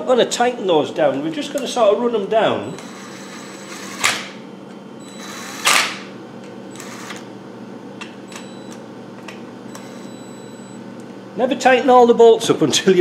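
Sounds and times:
cordless drill driving bolt: 6.8s - 7.2s.

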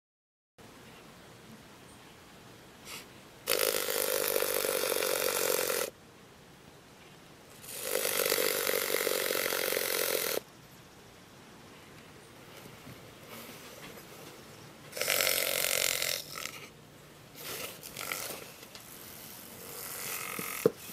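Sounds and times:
snake tail buzzing against plastic: 3.5s - 5.9s, 7.5s - 10.5s, 14.9s - 16.7s, 17.4s - 20.9s.

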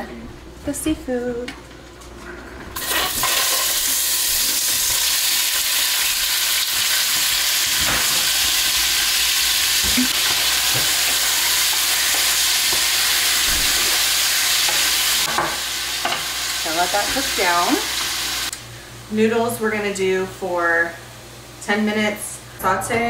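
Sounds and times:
seafood sizzling in hot oil: 2.8s - 18.5s.

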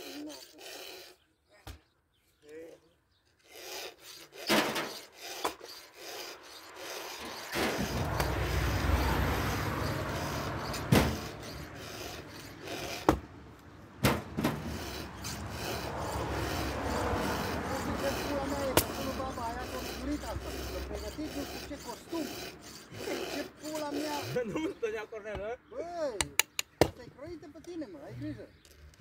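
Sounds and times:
file rasping on chainsaw chain: 0.0s - 1.3s, 3.3s - 13.2s, 14.5s - 24.9s
sharp knocks: 10.8s - 11.3s, 14.0s - 14.8s.

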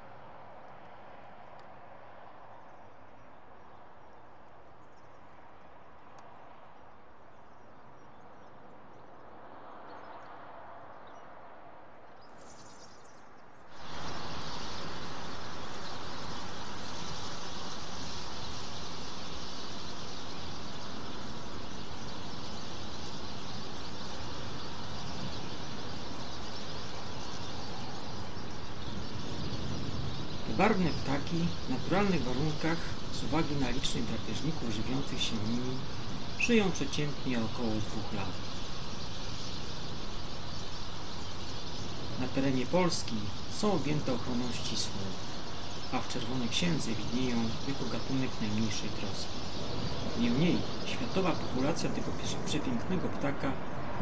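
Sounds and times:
outdoor background noise: 0.0s - 54.0s
loud steady rushing noise: 13.7s - 54.0s.

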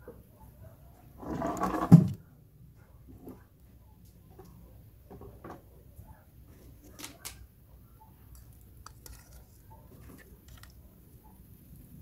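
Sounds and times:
shrimp handled in metal bowl: 8.3s - 11.0s.

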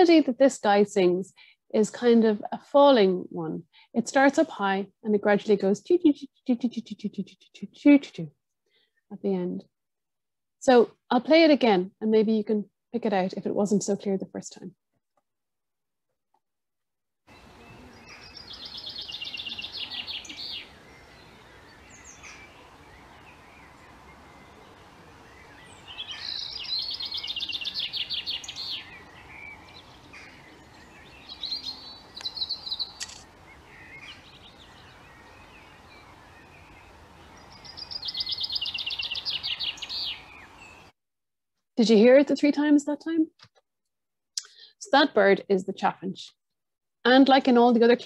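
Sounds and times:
chaffinch singing: 17.3s - 40.9s
faint bird chirps: 17.3s - 40.9s.

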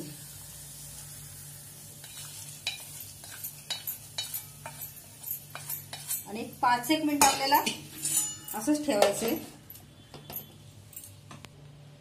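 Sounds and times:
faint oil sizzle: 0.0s - 8.2s
spatula scraping a pan: 2.0s - 6.6s, 7.2s - 8.5s.

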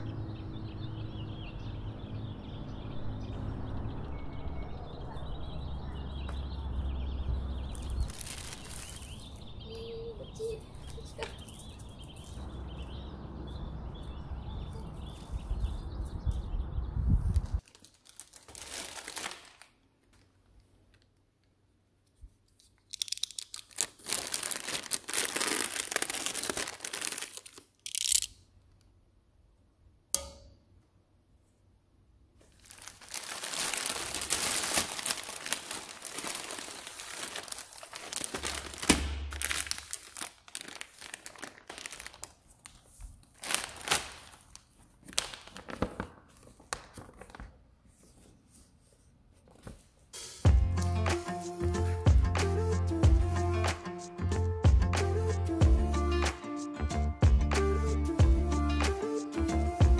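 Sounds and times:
outdoor background noise: 0.0s - 18.3s
plastic packaging crinkling: 7.7s - 9.5s, 17.4s - 21.1s, 22.8s - 28.3s, 32.4s - 47.6s.

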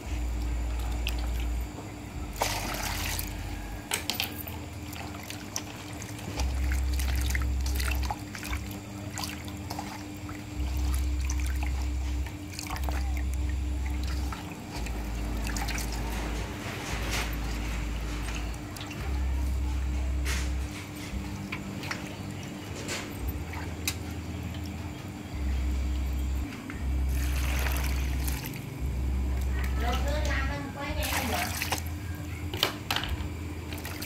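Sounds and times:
hands swishing and splashing water: 2.3s - 13.2s, 31.0s - 32.0s
water dripping: 2.3s - 16.4s
water pouring into metal basin: 27.1s - 28.6s.

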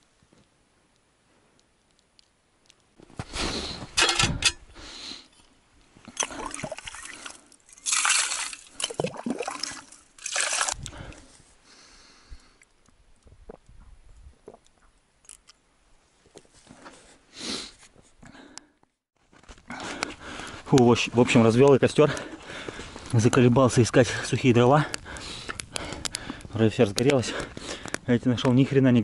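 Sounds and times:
mug scooping and sloshing water: 6.1s - 11.1s
water trickling and dripping: 6.1s - 11.1s.

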